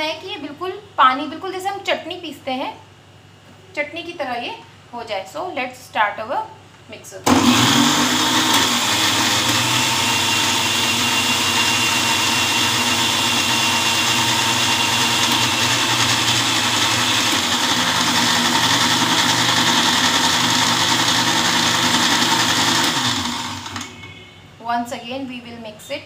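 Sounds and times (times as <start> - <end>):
mixer grinder running: 7.3 - 23.9.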